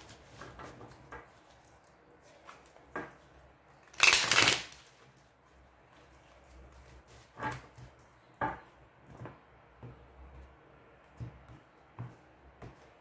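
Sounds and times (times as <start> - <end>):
cards riffling: 3.9 - 5.0.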